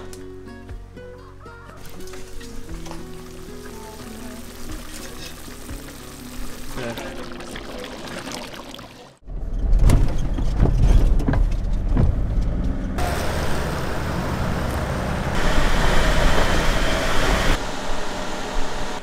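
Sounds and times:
car engine and road noise: 9.2s - 19.0s.

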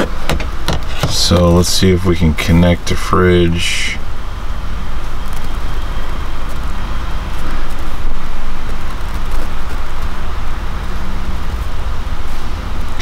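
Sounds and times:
low rumble inside truck cab: 0.0s - 13.0s
even hiss: 0.6s - 13.0s.

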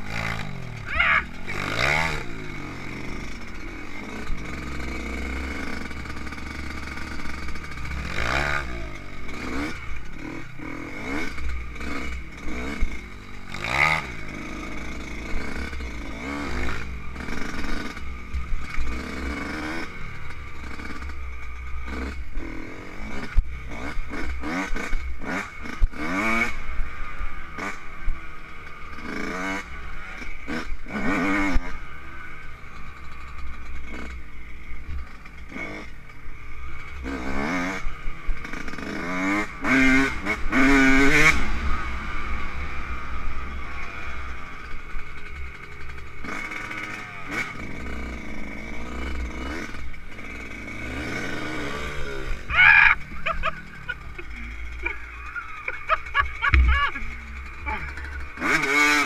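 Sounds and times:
dirt bike engine revving: 0.0s - 59.0s
knocks and rattles over bumps: 53.0s - 59.0s.

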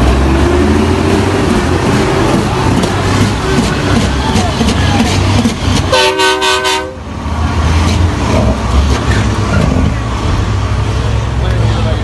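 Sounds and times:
crowd noise: 0.0s - 12.0s
heavy truck engines rumbling: 0.0s - 12.0s
truck air horn blast: 5.9s - 7.1s.

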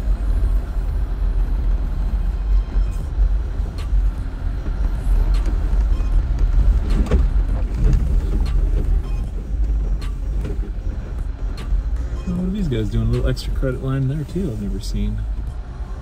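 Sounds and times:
engine and drivetrain rumble: 0.0s - 16.0s.

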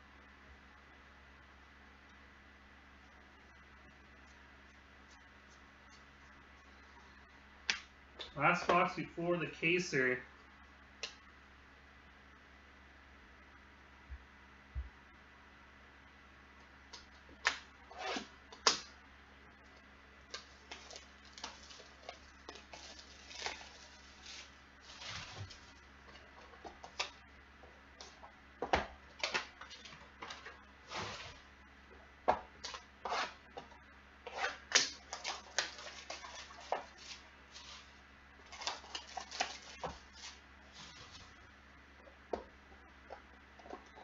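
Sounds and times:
plastic wrap tearing and crinkling: 20.3s - 25.8s, 34.5s - 41.4s.

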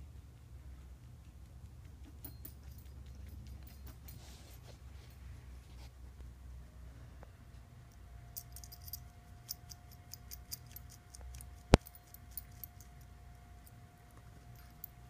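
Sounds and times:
dog collar tags jingling: 2.2s - 5.2s, 8.4s - 15.0s.

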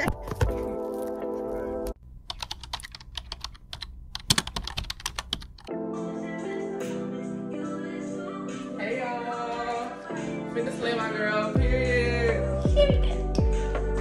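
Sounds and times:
background music: 0.0s - 2.0s, 5.7s - 14.0s.

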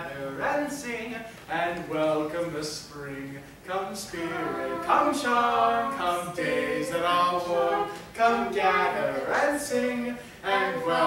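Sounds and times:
person singing unaccompanied: 4.1s - 11.0s.

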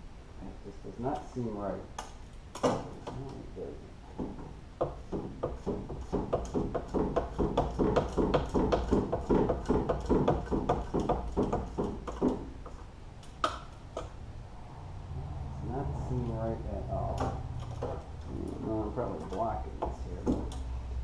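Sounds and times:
metallic clicking and scraping: 17.0s - 20.7s.

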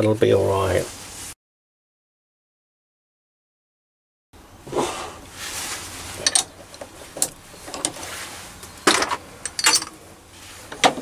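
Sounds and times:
metal tool holders clinking: 6.2s - 8.1s, 8.8s - 10.0s.

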